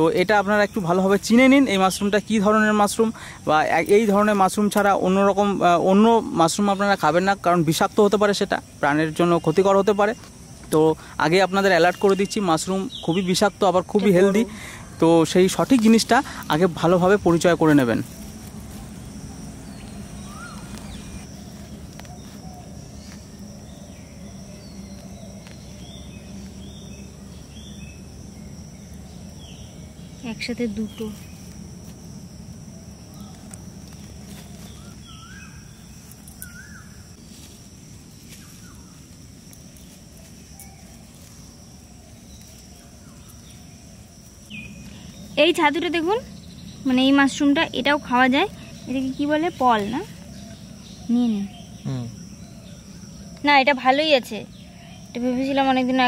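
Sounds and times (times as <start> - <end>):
insect drone: 0.0 - 56.0
bird chirps: 8.6 - 31.6, 32.7 - 37.4, 39.8 - 56.0
bird whistling: 19.7 - 21.3, 34.6 - 37.1.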